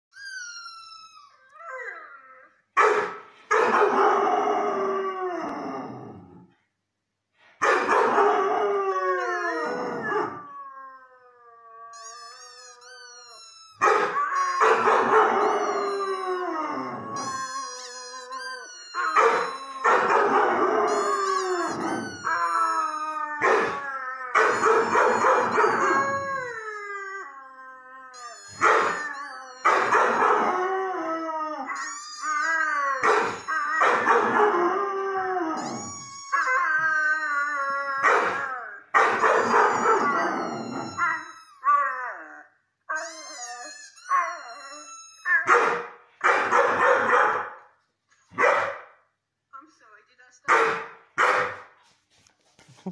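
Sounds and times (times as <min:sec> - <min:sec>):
dog howling: 0:08.0 - 0:12.1, 0:13.8 - 0:47.6
soft wavering dog tones: 0:08.4 - 0:45.5.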